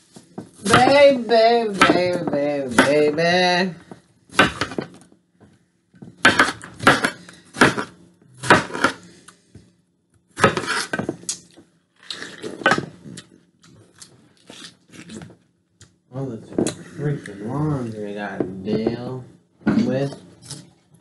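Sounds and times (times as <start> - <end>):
knife chopping watermelon: 0.6 - 3.2, 4.3 - 5.0, 6.2 - 9.1, 10.4 - 11.3.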